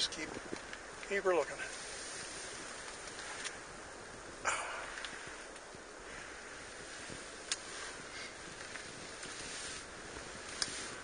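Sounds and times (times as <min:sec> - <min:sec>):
steady wind noise: 0:00.0 - 0:11.0
fabric rustling: 0:06.2 - 0:11.0.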